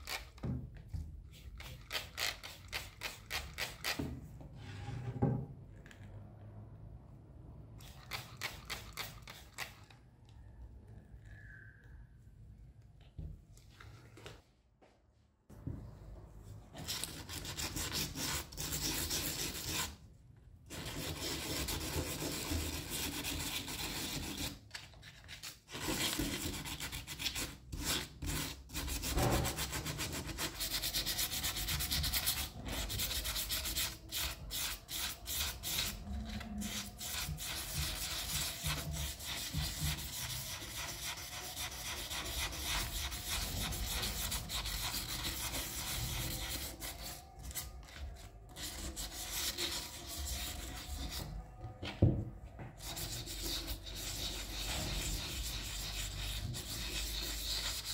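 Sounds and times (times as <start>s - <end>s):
sandpaper scraping metal: 25.3s - 51.3s, 52.8s - 57.9s.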